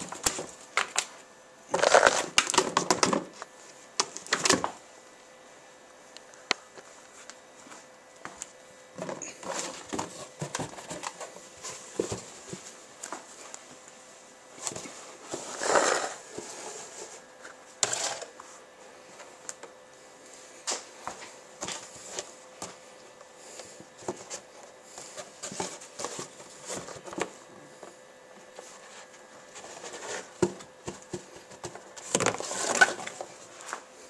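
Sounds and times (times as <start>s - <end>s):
cardboard box scraping on tile: 1.7s - 2.4s, 14.6s - 18.3s, 28.6s - 30.6s, 32.0s - 33.8s
kittens scratching cardboard: 14.6s - 18.3s, 28.4s - 33.6s.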